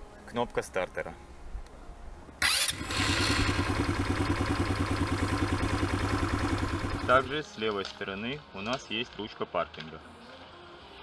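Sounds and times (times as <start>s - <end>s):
electric starter cranking: 2.4s - 7.3s
engine idling: 2.4s - 7.3s.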